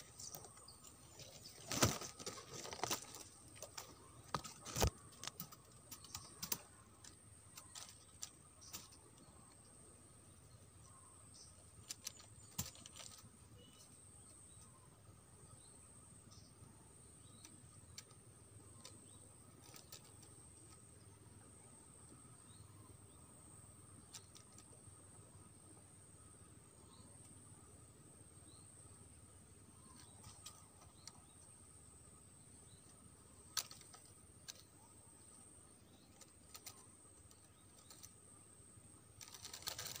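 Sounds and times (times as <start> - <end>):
crackling clicks: 0.0 - 9.6, 11.4 - 13.3, 17.3 - 20.9, 24.0 - 24.8, 32.7 - 38.2, 39.1 - 40.0
high insect drone: 0.0 - 40.0
faint sharp clicks: 1.7 - 9.6.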